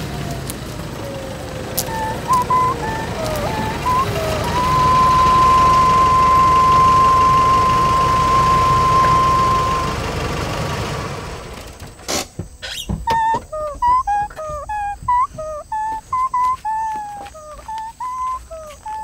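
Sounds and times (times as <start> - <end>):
engine idling: 0.0 - 13.1
long high steady note: 2.0 - 10.0.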